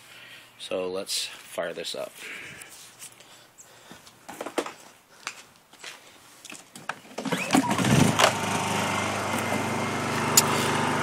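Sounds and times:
generator engine running: 7.3 - 11.0.

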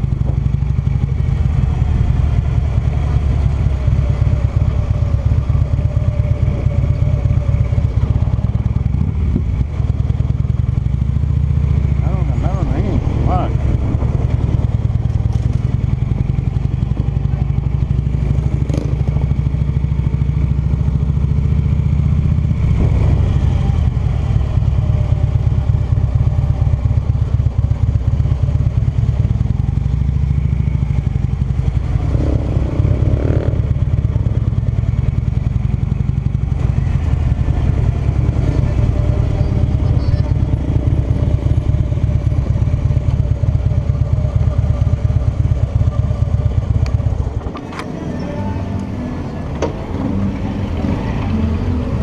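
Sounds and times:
motorcycle engine running: 0.0 - 52.0.

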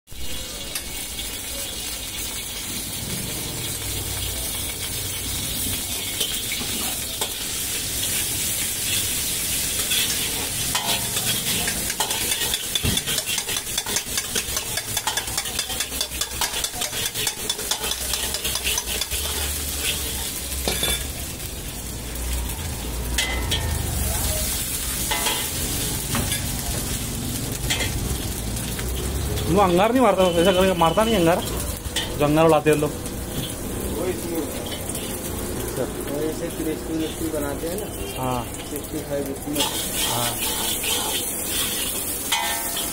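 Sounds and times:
oil sizzling in a wok: 0.1 - 42.9
steel ladle scraping a pan: 4.4 - 21.1, 24.4 - 26.6, 39.6 - 42.9.

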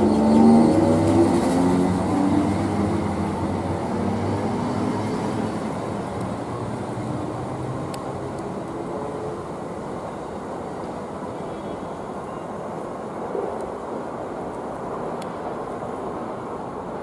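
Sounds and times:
electric train humming tones: 0.0 - 10.9
train rumble: 0.0 - 17.0.

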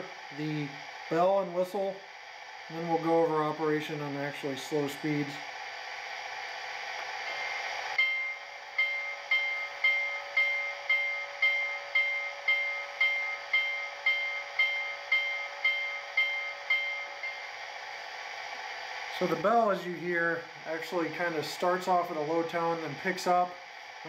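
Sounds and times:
steady speaker hiss: 0.0 - 24.0
locomotive bell ringing: 7.3 - 17.6.

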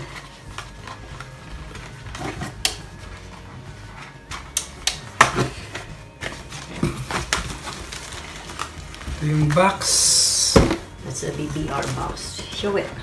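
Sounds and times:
plastic foam and cardboard knocks: 10.5 - 11.0.

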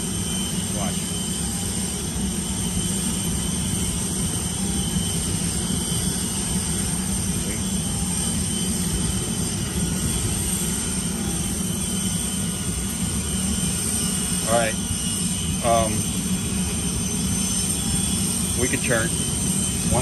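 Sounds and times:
machinery rumble and hum: 0.0 - 20.0.

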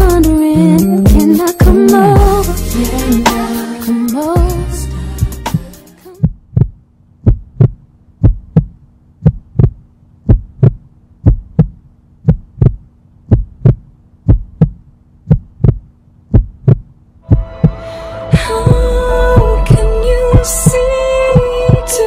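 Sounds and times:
heartbeat thumps: 6.2 - 22.0
low hum: 17.2 - 22.0.

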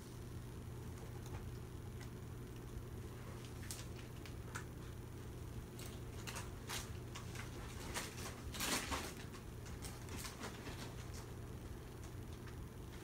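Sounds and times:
plastic sleeves rustling: 3.2 - 4.9, 5.7 - 11.4.

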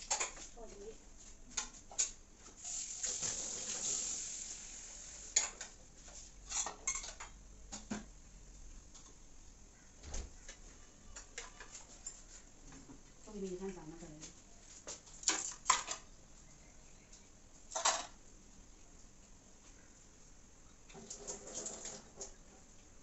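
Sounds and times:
dishes and utensils clinking: 5.3 - 5.8, 6.4 - 7.4, 15.2 - 16.1, 17.7 - 18.2.

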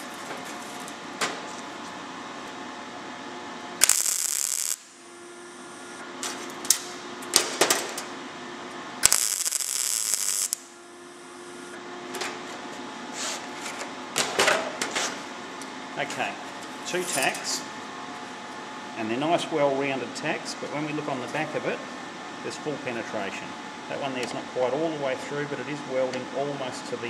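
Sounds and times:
welder arc sizzling bursts: 3.8 - 5.9, 9.0 - 11.4.

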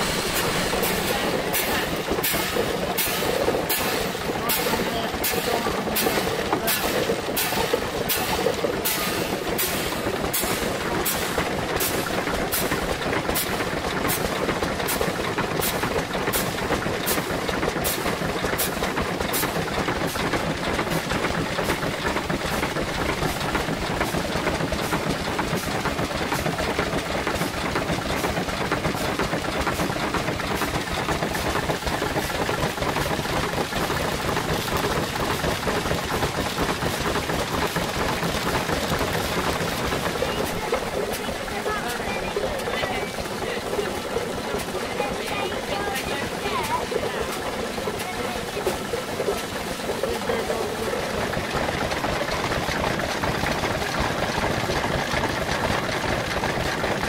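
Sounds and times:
small stationary engine running: 0.0 - 57.0
winnower mechanical rattle: 0.0 - 57.0.

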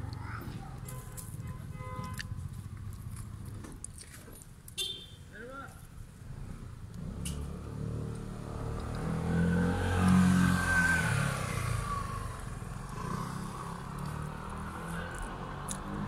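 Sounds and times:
vehicle driving past: 7.0 - 16.0.

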